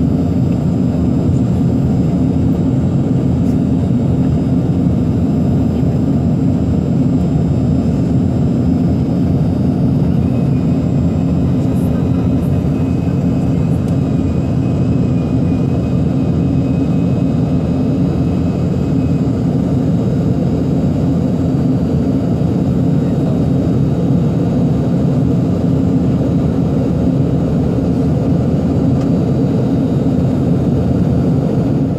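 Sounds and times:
faint high whine: 0.0s - 25.0s
jet engine cabin rumble: 0.0s - 31.9s.

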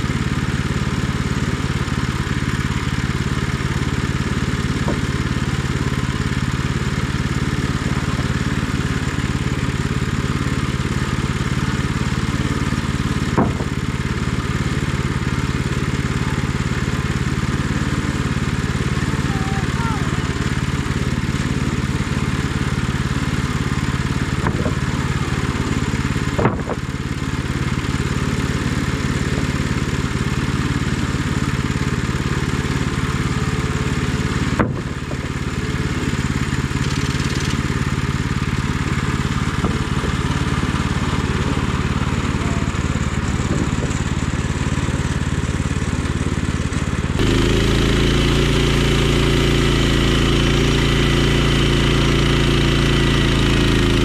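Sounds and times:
petrol engine running: 0.0s - 54.0s
band blade cutting log: 12.1s - 15.0s, 23.6s - 27.0s, 34.4s - 37.8s, 47.2s - 54.0s
sharp clicks: 36.8s - 37.6s.

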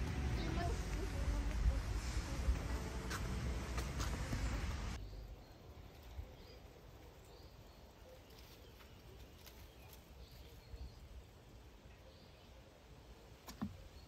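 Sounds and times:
loud rushing noise: 0.0s - 5.0s.

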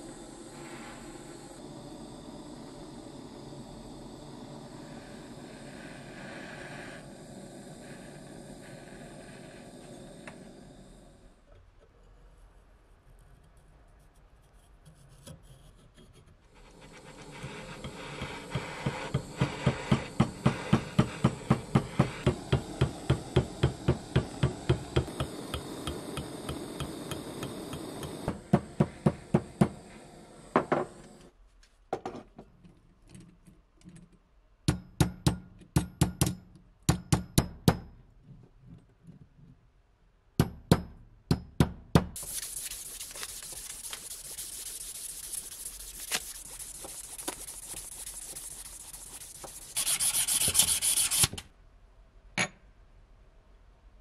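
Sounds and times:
butane torch hissing: 0.0s - 11.5s, 16.5s - 31.4s, 42.2s - 51.5s
hammer tapping metal tube: 17.8s - 29.8s, 34.7s - 38.0s, 40.4s - 42.2s
sharp taps on steel block: 34.7s - 37.9s.

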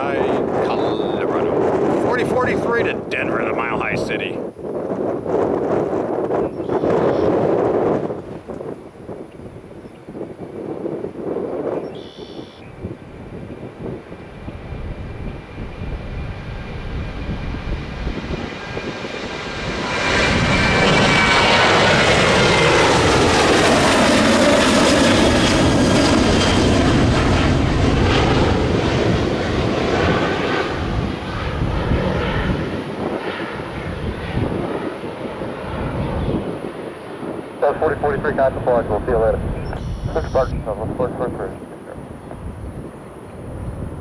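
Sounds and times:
jet airliner taking off: 0.0s - 44.0s.

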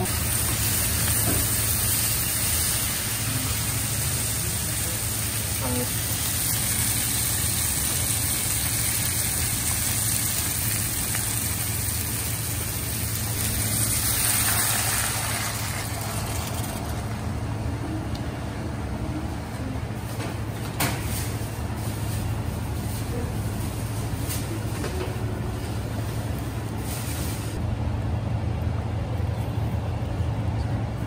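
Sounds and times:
fish sizzling in a wok: 0.0s - 17.1s
steady low hum: 0.0s - 31.0s
liquid pouring into wok: 13.4s - 17.0s.

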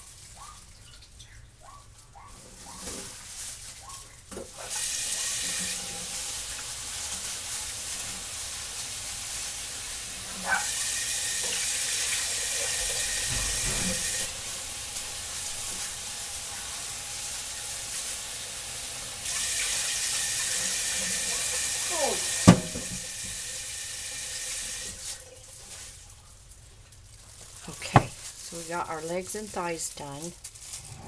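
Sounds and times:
tap running into a sink: 10.8s - 16.8s, 19.2s - 23.6s.

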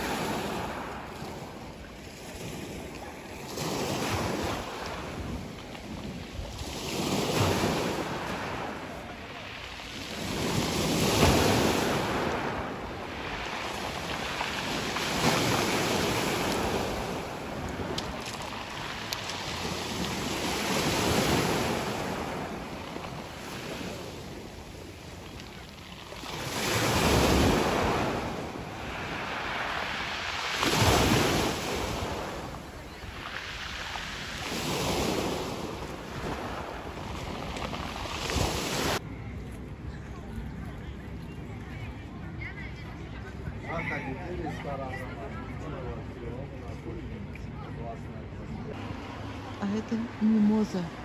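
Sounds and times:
sea waves washing onto shore: 0.0s - 39.0s.

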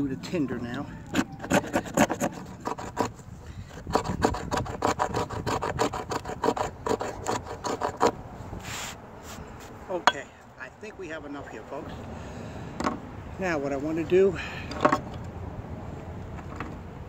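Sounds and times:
blade scraping wood shavings: 1.0s - 9.7s.

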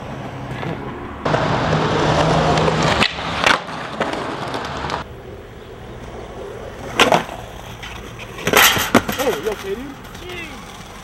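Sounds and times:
skateboard wheels rolling on concrete: 0.0s - 11.0s.

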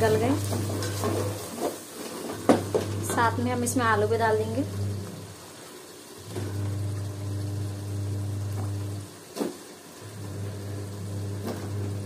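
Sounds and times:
low electrical hum: 0.0s - 1.5s, 2.2s - 12.0s.

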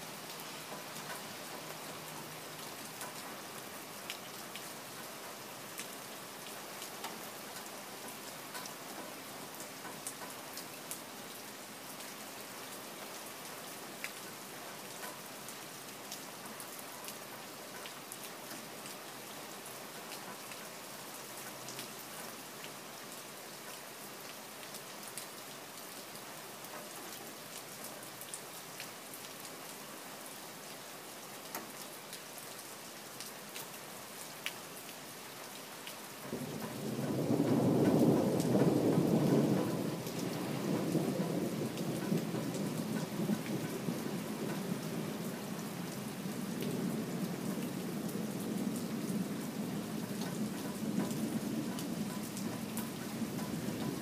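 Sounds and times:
steady rain splashing: 0.0s - 54.0s
thunder rumble: 36.4s - 45.3s.

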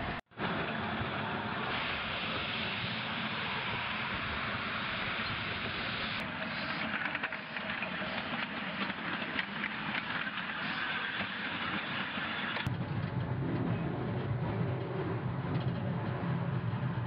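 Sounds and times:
train cars clicking on track: 0.0s - 17.0s
steam hissing from locomotive: 1.5s - 12.7s.

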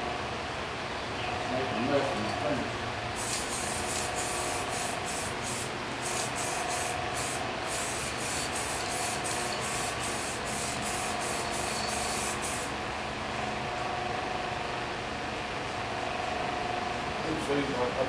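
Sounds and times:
spray paint can hissing: 3.2s - 12.7s.

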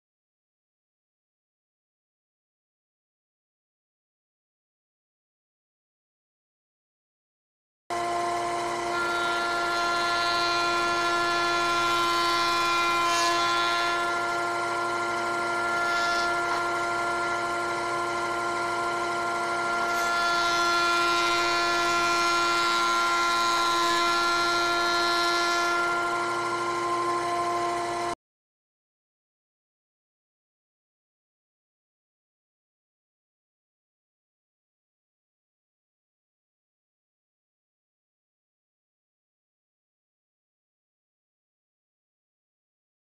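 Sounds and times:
thickness planer motor whine: 7.9s - 28.2s
board hissing through planer: 8.8s - 28.1s.

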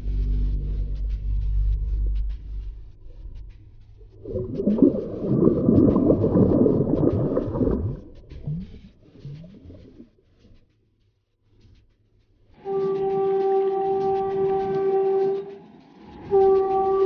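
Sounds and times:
fish splashing in water: 4.0s - 10.0s.

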